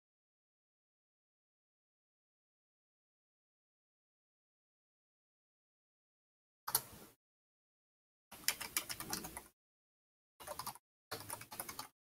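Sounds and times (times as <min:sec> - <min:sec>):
computer keyboard typing: 0:08.4 - 0:09.5, 0:10.4 - 0:12.0.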